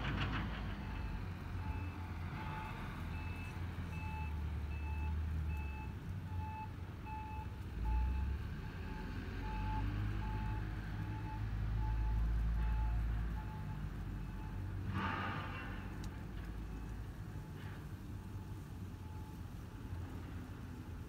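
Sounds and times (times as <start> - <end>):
engine rumble: 0.0 - 21.0
reversing alarm beeping: 0.8 - 14.7.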